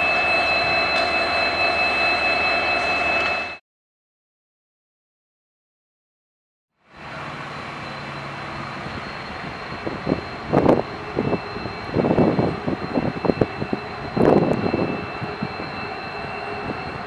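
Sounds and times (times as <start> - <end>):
diesel locomotive engine hum: 0.0 - 3.6, 6.8 - 17.0
turbocharger whine: 6.8 - 17.0.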